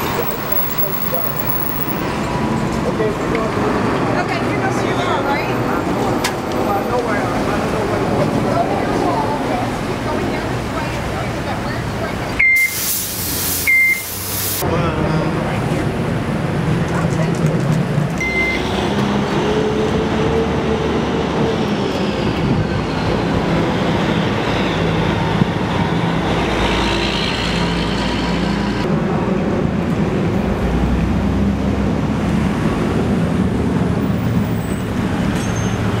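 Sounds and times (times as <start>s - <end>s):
vehicle rumble and hiss: 0.0s - 4.7s, 5.3s - 19.6s.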